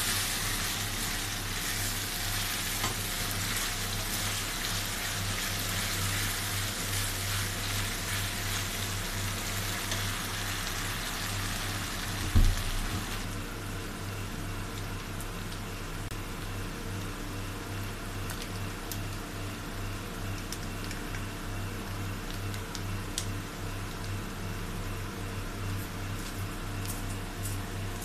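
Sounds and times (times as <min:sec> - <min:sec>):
vegetables sizzling in hot oil: 0:00.0 - 0:13.3
thump: 0:12.3 - 0:12.6.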